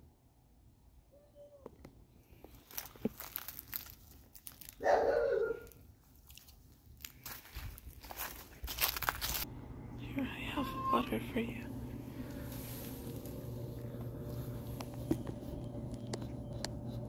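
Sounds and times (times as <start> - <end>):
footsteps crunching through dry leaves: 2.5 - 9.5, 12.1 - 15.6.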